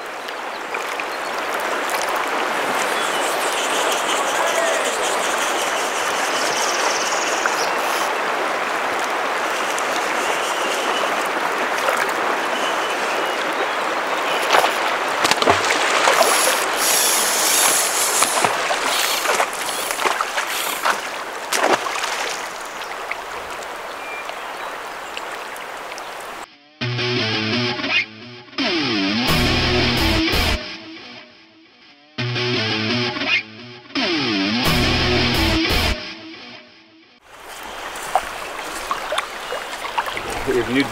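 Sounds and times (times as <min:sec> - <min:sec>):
river current rushing: 0:00.0 - 0:26.5, 0:37.2 - 0:40.9.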